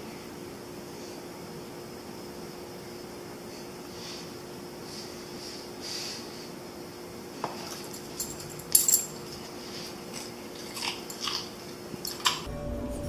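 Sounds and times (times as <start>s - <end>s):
collar tags jingling: 7.7s - 9.5s
dog claws clicking on tile: 10.1s - 12.5s.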